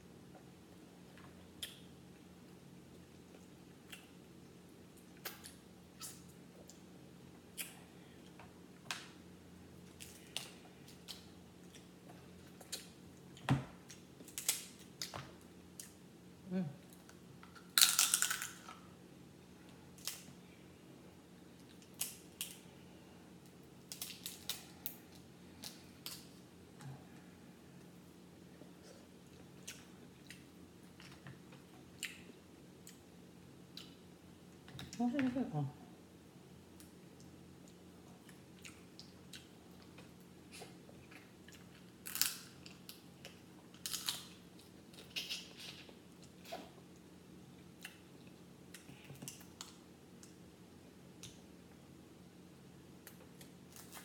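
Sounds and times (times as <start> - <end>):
faint steady hum: 0.0 - 54.0
crab shells cracking: 14.2 - 14.9, 17.7 - 18.8, 42.0 - 43.0, 43.8 - 44.3.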